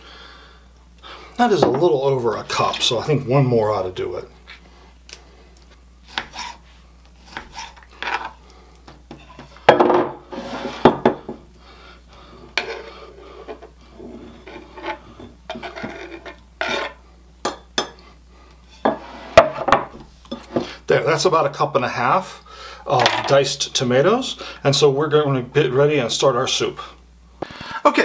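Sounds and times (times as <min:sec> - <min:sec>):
knife chopping on cutting board: 0:06.1 - 0:06.6.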